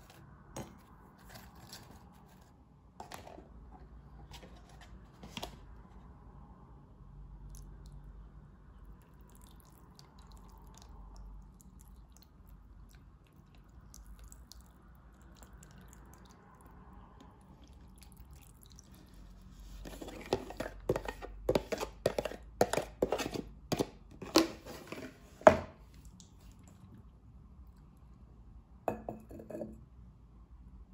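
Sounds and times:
ceramic lid clatter: 28.9 - 29.8.

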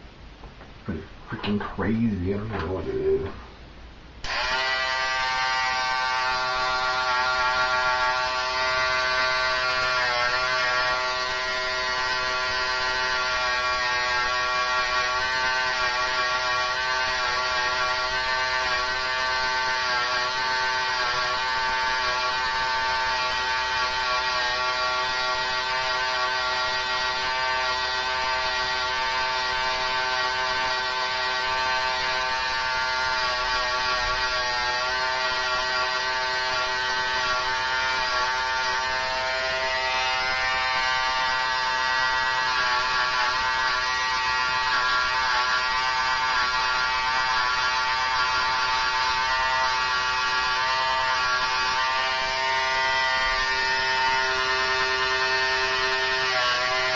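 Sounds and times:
electric hair clippers buzzing: 4.2 - 56.9.

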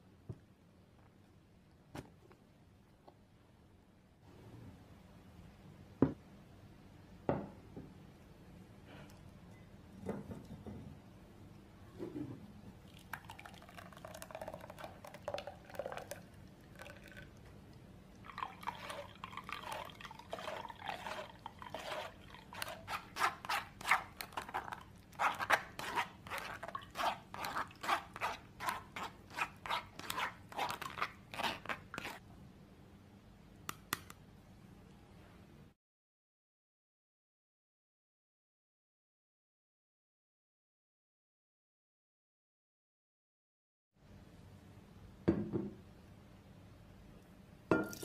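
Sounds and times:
juice draining into bowl: 12.8 - 22.9, 47.8 - 48.0
pulp poured into strainer: 12.9 - 17.4, 18.2 - 32.2
spoon scraping mesh strainer: 18.6 - 32.2.

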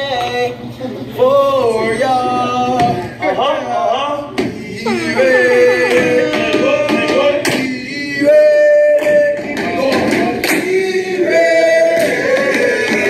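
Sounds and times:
voices singing held notes: 4.2 - 13.0.

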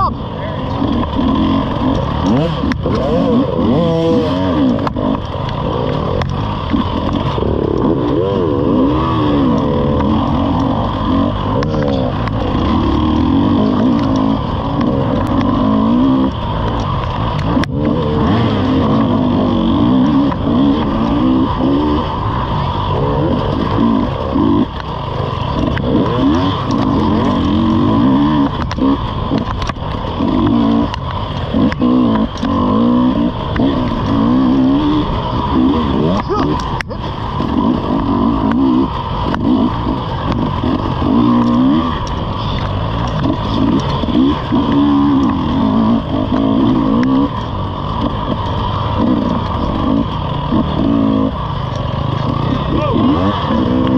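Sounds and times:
dirt bike engine revving: 0.0 - 53.9.

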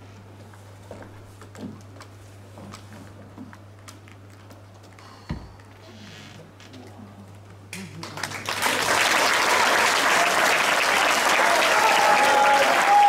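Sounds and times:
audience applause: 8.0 - 13.0.

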